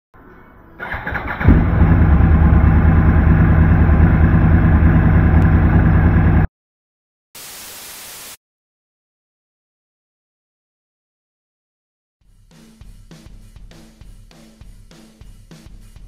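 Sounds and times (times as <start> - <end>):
motorcycle engine starting and idling: 0.8 - 6.5
static hiss: 7.4 - 8.4.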